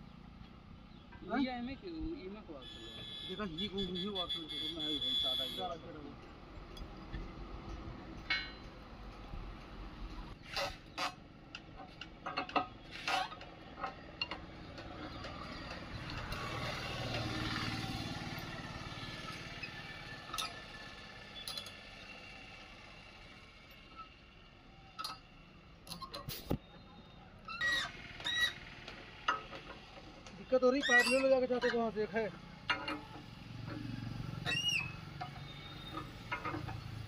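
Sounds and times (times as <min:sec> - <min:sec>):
motor vehicle passing: 0:14.5 - 0:23.6, 0:31.9 - 0:37.0.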